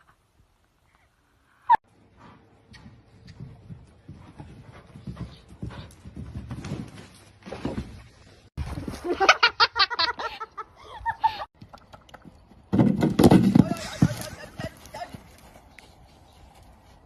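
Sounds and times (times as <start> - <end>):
horse hoofbeats on sand: 2.2 - 8.8, 12.5 - 17.0.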